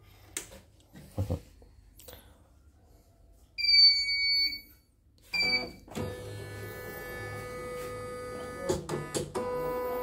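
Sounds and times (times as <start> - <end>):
electrical hum: 5.4 - 10.0.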